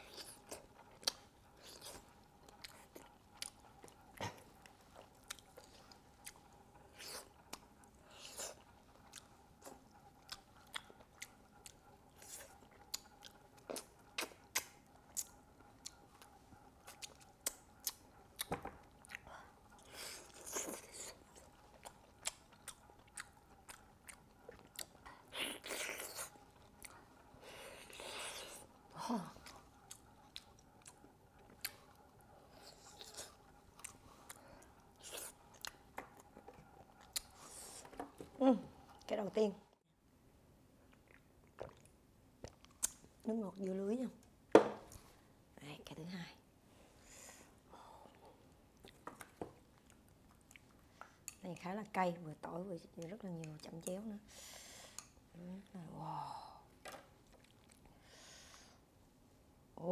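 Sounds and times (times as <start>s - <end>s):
chewing and lip-smacking: 0.0s - 38.3s, 40.9s - 43.2s, 48.8s - 51.4s, 57.1s - 58.0s.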